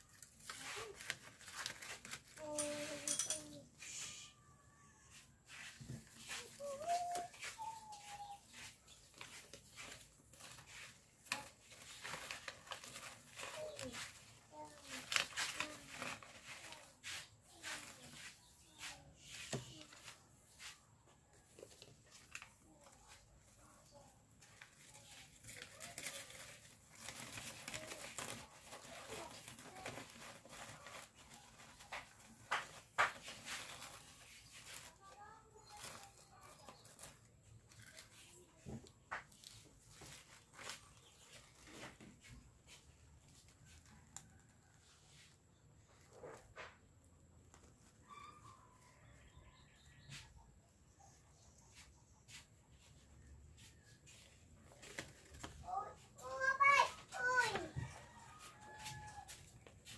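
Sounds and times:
paper rustling and tapping: 0.0 - 3.6, 5.8 - 20.7, 24.4 - 42.8.

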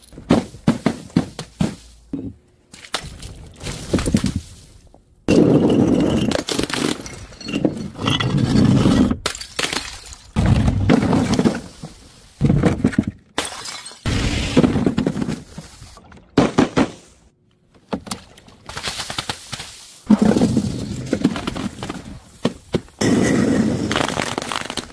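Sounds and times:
glass bottles smashing: 5.3 - 10.4, 13.4 - 14.1.

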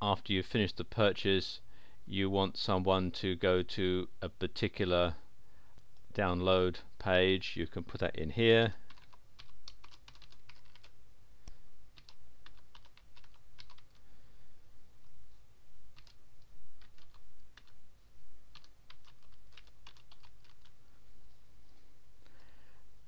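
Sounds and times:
typing on computer keyboard: 8.9 - 10.9, 12.0 - 14.0, 15.9 - 16.2, 16.8 - 17.8, 18.5 - 20.7.

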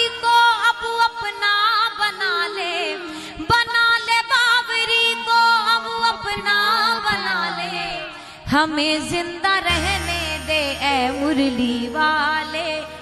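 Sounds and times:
ornamented devotional melody: 9.4 - 13.0
steady held drone: 9.7 - 13.0.

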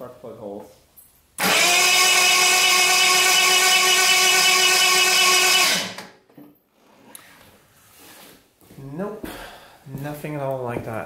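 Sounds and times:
starter motor cranking engine: 1.4 - 6.2.

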